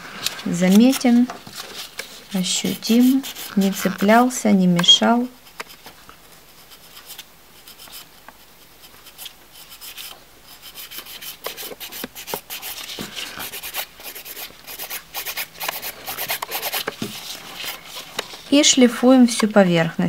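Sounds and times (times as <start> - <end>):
nail file rasping: 13.4 - 16.9.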